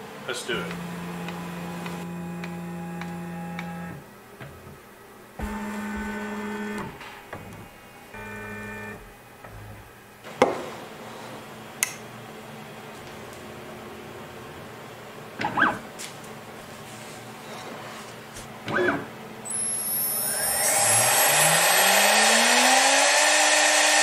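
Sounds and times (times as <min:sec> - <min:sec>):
stepper motors whining: 0:00.4 - 0:04.0, 0:05.4 - 0:10.0, 0:18.7 - 0:24.0.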